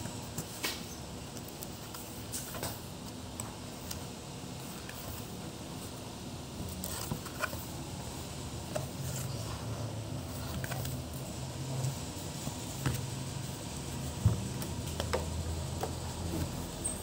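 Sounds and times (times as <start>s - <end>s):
low background hum: 0.0s - 17.0s
book pages turning: 0.2s - 5.9s, 6.6s - 7.8s, 8.6s - 13.5s.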